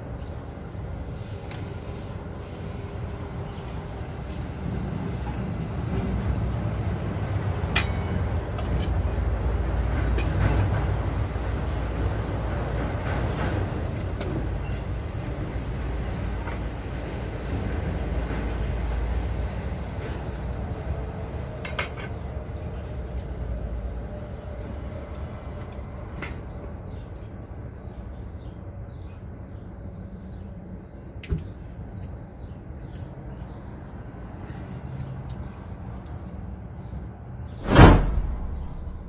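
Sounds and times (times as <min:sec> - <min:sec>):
heavy vehicles rumbling: 0:00.0 - 0:27.0, 0:37.4 - 0:39.0.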